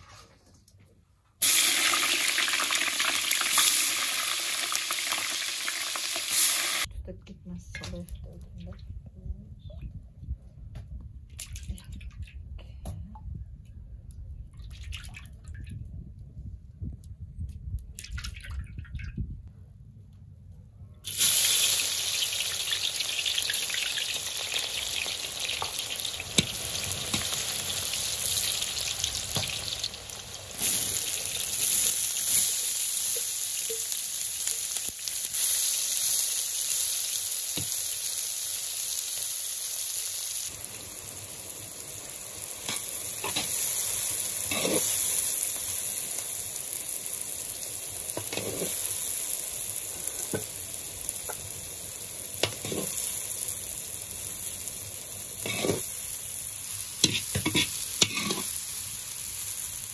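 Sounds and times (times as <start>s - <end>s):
vegetables sizzling in hot oil: 1.4s - 6.9s, 21.0s - 59.9s
metal spoon scraping pot: 44.5s - 44.9s, 55.5s - 55.8s, 57.0s - 58.5s.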